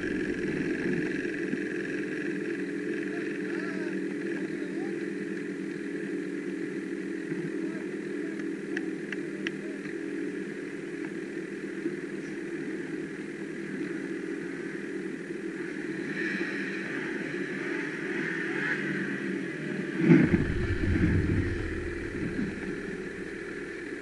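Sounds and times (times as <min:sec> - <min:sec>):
snowmobile engine: 0:00.0 - 0:02.0, 0:20.0 - 0:24.0.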